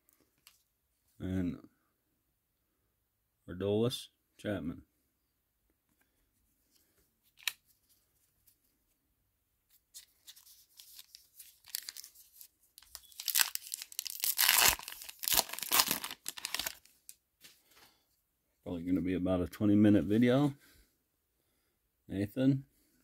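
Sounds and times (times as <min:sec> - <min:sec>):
wrapper rustling and crinkling: 0:09.9 - 0:17.1
wrapper ripping: 0:10.0 - 0:17.1.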